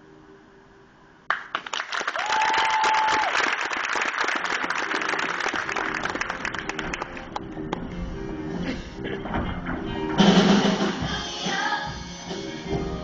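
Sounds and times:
audience applause and cheering: 1.3s - 7.9s.

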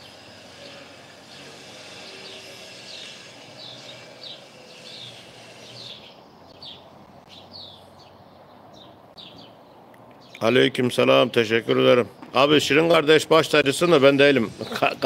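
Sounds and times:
bird chirping: 0.0s - 10.6s
faint outdoor background: 0.0s - 15.0s.

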